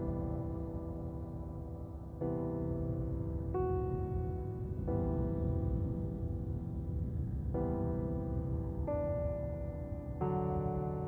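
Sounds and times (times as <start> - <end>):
slow music of held chords: 0.0 - 11.0.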